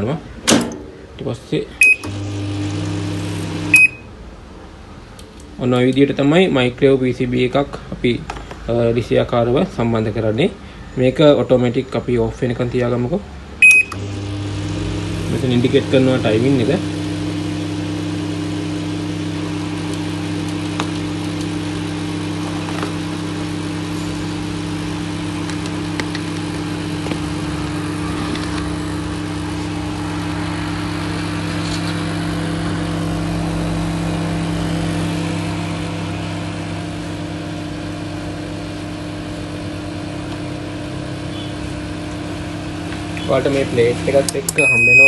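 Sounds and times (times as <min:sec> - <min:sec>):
microwave transformer hum: 0:00.0 - 0:11.7, 0:12.3 - 0:45.0
cooling fan: 0:12.8 - 0:45.0.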